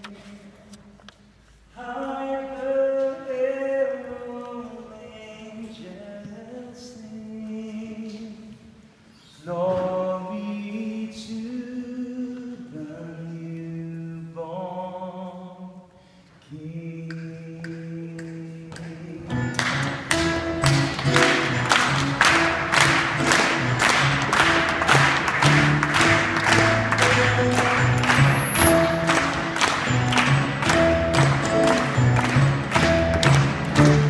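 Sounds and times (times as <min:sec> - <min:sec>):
singers breathing: 0:15.9 - 0:16.4.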